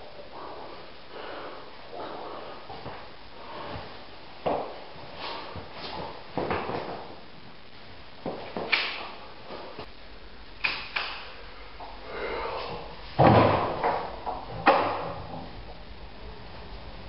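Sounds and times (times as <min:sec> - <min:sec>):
wooden door thumping and banging: 0:13.2 - 0:15.2.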